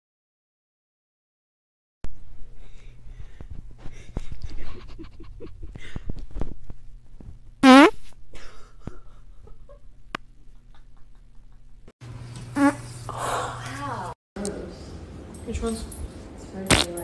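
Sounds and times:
loud pitched fart: 7.6s - 8.0s, 12.6s - 12.8s, 16.7s - 17.0s.

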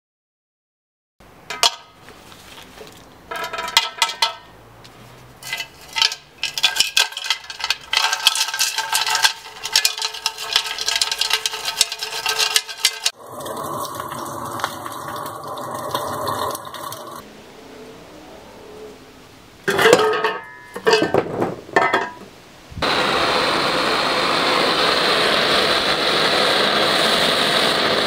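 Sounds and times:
debris rattling inside metal tank: 3.3s - 4.5s, 5.4s - 15.2s, 19.7s - 22.3s
steady noise: 17.2s - 28.0s
empty metal tank ringing: 19.7s - 21.2s.

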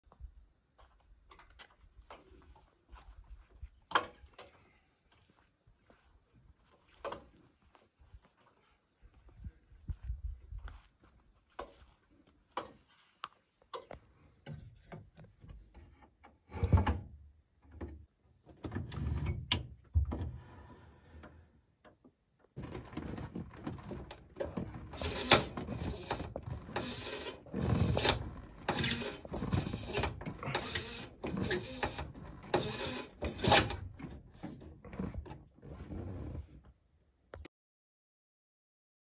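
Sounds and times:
clicks of knobs being turned: 24.4s - 33.9s
rasping mechanical primer strokes: 25.0s - 33.8s.

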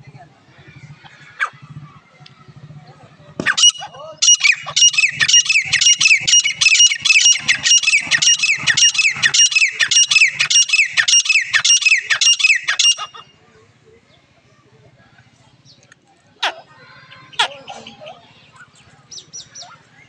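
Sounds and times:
francolin calling shrilly: 3.5s - 13.3s.

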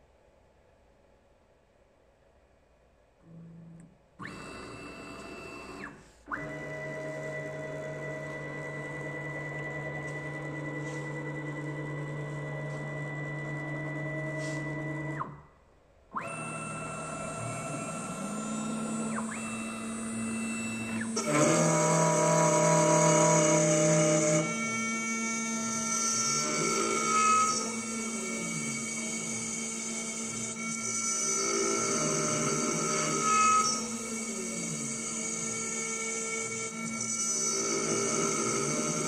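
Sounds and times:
stepper motors whining: 3.3s - 15.4s, 16.1s - 39.0s
spindle humming: 16.2s - 39.0s
end mill cutting metal: 16.4s - 39.0s.

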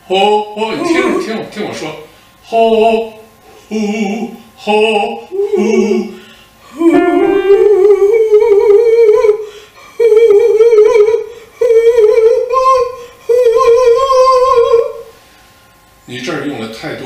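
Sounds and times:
woman singing sustained notes: 6.8s - 9.4s.

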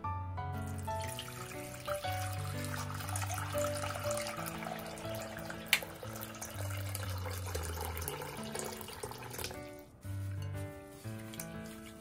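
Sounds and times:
background music: 0.0s - 12.0s
tap water running into bowl: 0.7s - 9.6s.

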